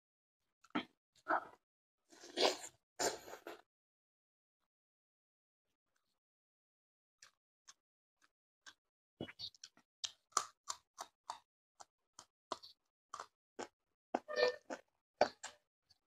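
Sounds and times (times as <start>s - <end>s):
person chewing crunchy food: 8.6s - 15.6s.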